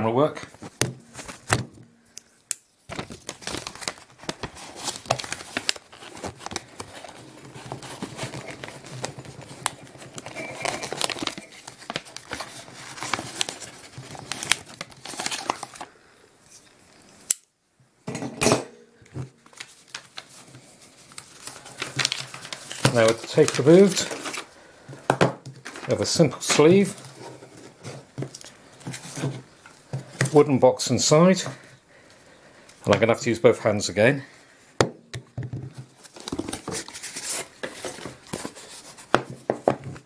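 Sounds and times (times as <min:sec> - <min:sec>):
packing tape tearing: 0:02.6 - 0:15.9, 0:21.0 - 0:24.6
wrapping paper crinkling: 0:02.8 - 0:16.1, 0:19.3 - 0:24.9, 0:35.8 - 0:40.0.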